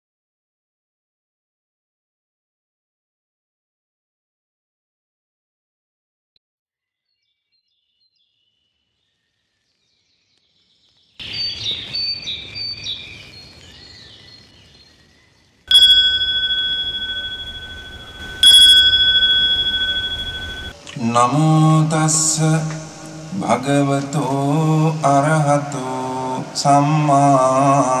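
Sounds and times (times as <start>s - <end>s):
birds chirping: 15.7s - 20.7s
hanging metal bell ringing: 15.7s - 20.8s.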